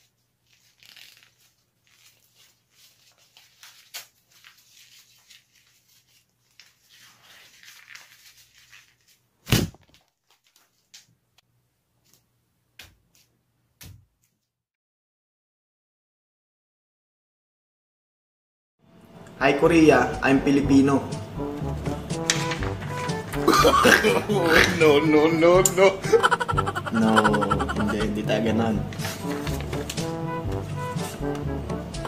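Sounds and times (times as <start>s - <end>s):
paper tearing and crumpling: 0.0s - 11.0s, 22.1s - 24.9s, 28.8s - 31.3s.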